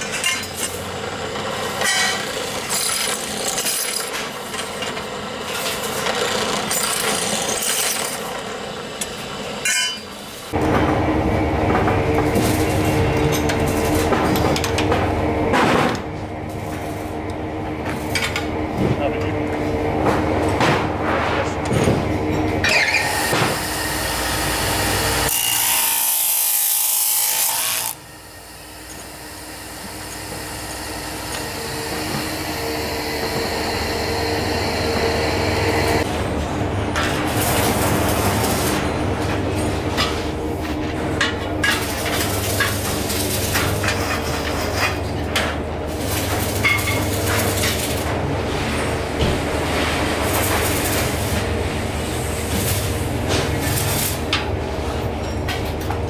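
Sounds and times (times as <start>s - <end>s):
cut-off saw grinding steel: 0.0s - 10.6s, 22.6s - 36.1s
low machine hum: 4.3s - 22.7s
steel pipes clinking and knocking: 9.6s - 10.1s.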